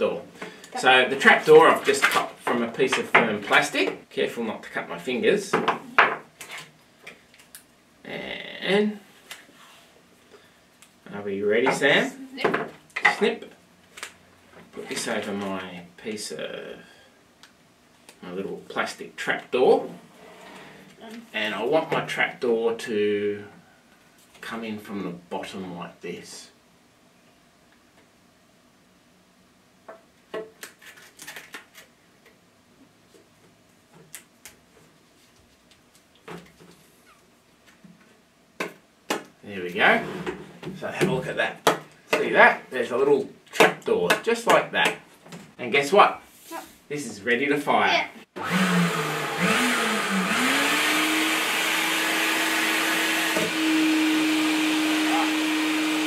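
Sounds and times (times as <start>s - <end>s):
vacuum cleaner motor whine: 48.4s - 56.0s.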